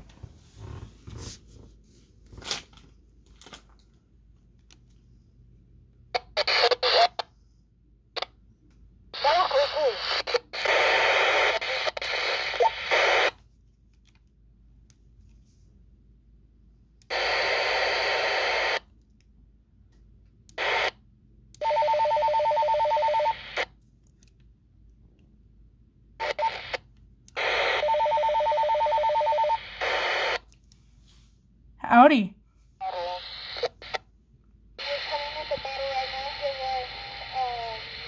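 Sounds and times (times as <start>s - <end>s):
walkie-talkie radio hiss: 9.2s - 13.3s, 29.7s - 30.4s, 32.8s - 34.0s, 34.8s - 38.0s.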